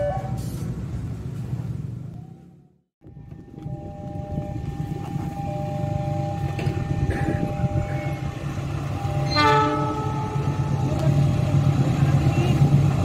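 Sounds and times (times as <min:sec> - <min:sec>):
train rumbling: 0:00.0 - 0:13.0
electronic warning tone: 0:03.3 - 0:10.9
train horn: 0:09.0 - 0:10.9.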